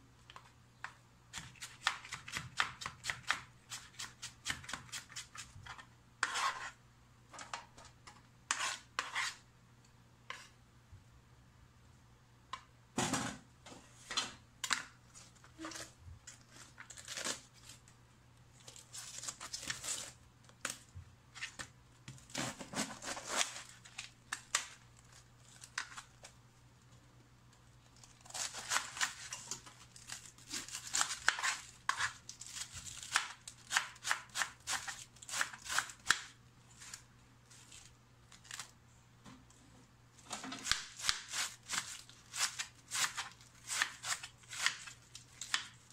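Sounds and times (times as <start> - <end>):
cabbage leaves crunching and tearing: 29.9 - 33.7.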